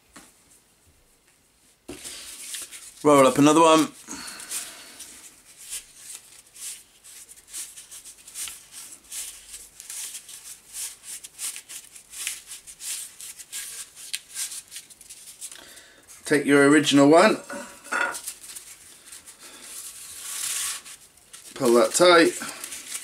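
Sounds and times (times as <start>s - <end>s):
cardboard rustling and crackling: 18.2s - 23.0s.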